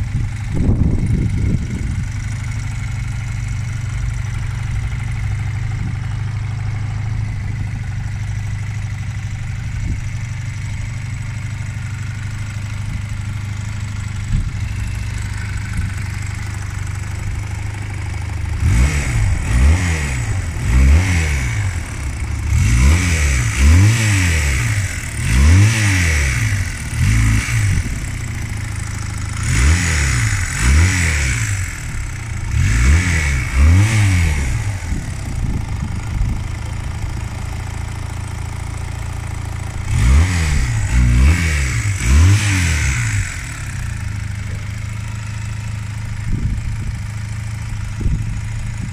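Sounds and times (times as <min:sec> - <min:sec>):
motorcycle engine idling and revving: 0:00.0 - 0:48.9.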